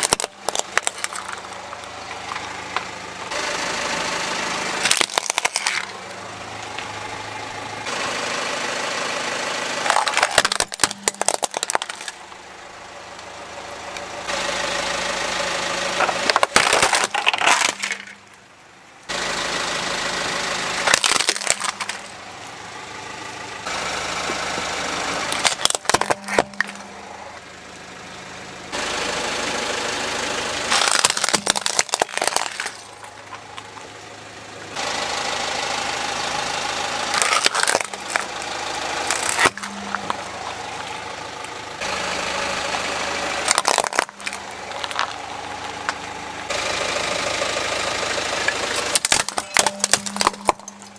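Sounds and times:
toy cars cracking and crunching: 0:00.0 - 0:02.9, 0:04.8 - 0:06.0, 0:09.8 - 0:12.4, 0:15.9 - 0:18.4, 0:20.8 - 0:22.2, 0:25.2 - 0:26.9, 0:30.7 - 0:34.0, 0:37.0 - 0:41.6, 0:43.3 - 0:46.0, 0:48.5 - 0:50.9
car engine running: 0:00.0 - 0:50.9.

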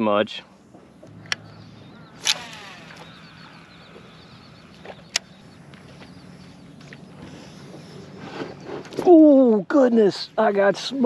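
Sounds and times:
fishing reel line whirring: 0:01.1 - 0:09.0
sharp reel click: 0:02.2 - 0:05.3.

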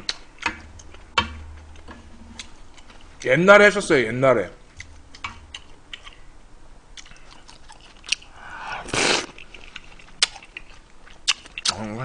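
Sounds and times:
chewing and mouth clicks: 0:04.8 - 0:06.3, 0:06.9 - 0:12.0
loud slurp: 0:08.4 - 0:09.4.

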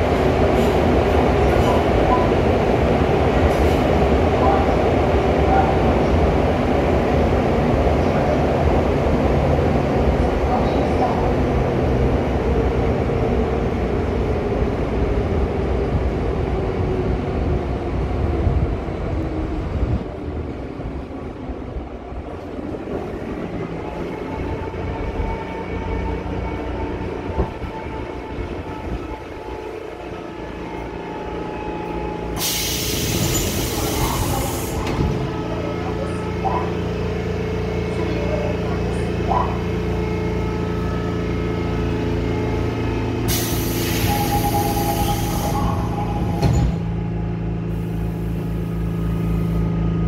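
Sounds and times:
train wheel and running noise: 0:00.0 - 0:50.0
loud air brake hiss: 0:32.4 - 0:34.9, 0:43.3 - 0:46.0.

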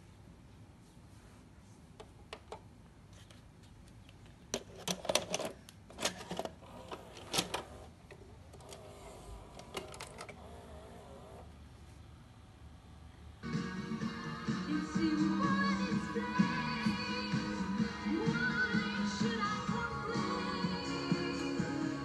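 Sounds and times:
tape motor whirring: 0:08.6 - 0:11.5.

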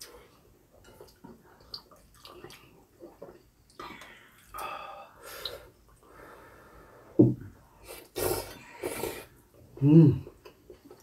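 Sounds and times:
slurping noodles and broth: 0:07.8 - 0:09.4.

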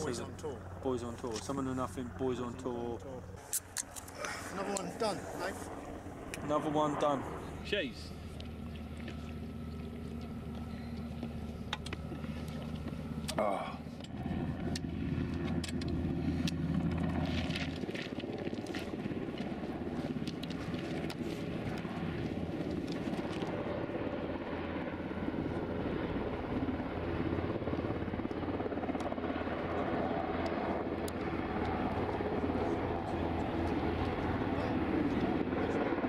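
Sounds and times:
helicopter rotors droning: 0:00.0 - 0:36.0
footsteps on stony path: 0:17.0 - 0:23.6.

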